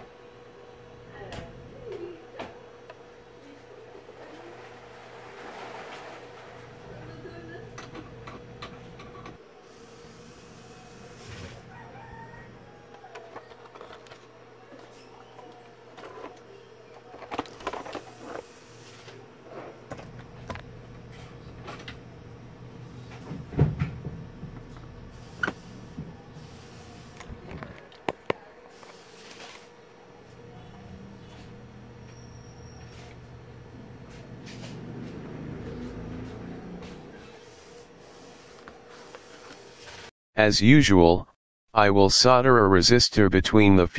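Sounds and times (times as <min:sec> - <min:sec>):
steady low hum: 0:06.5 - 0:41.2.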